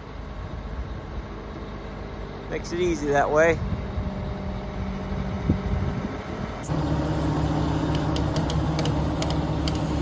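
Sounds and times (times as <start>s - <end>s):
crane engine idling: 0.0s - 10.0s
light clicks: 7.9s - 9.9s.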